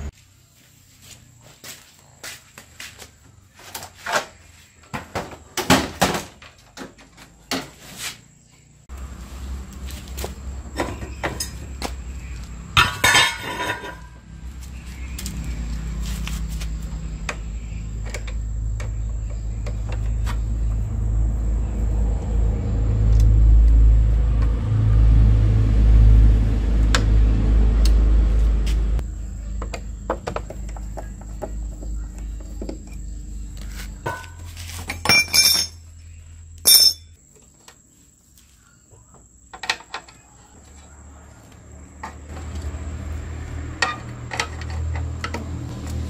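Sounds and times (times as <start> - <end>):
sharp metallic clinks: 34.1 - 35.9, 36.6 - 37.2.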